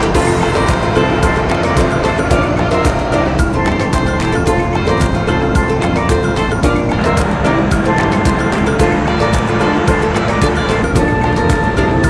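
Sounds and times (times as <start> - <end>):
music with steady drum beat: 0.0 - 12.0.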